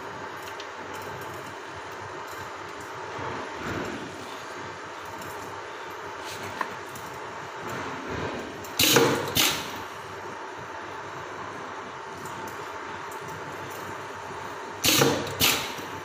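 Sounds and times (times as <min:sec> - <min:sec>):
pneumatic air bursts: 0:08.8 - 0:09.8, 0:14.8 - 0:15.9.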